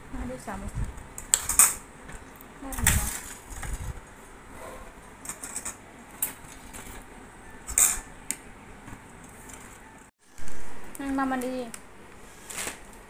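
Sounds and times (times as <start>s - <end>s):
metal spoons clinking on steel bowls: 5.2s - 6.6s, 7.6s - 8.1s.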